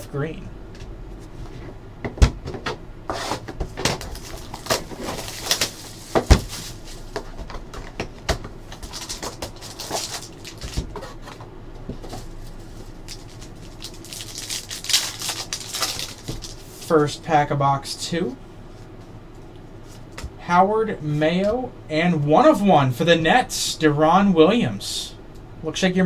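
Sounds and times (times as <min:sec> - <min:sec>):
foil wrappers crinkling: 0:03.8 - 0:07.7, 0:08.6 - 0:11.3, 0:12.0 - 0:17.0.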